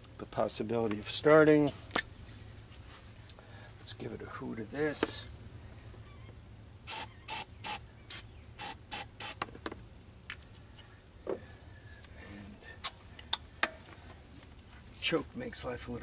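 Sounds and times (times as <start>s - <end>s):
aerosol spray can hissing: 6.9s - 9.4s.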